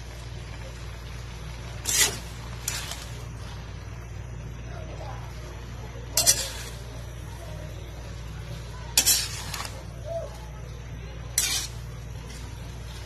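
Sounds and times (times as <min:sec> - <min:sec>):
steady low hum: 0:00.0 - 0:13.0
metal utensil scraping a pan: 0:01.8 - 0:03.4, 0:06.1 - 0:07.2, 0:08.5 - 0:10.4, 0:11.2 - 0:13.0.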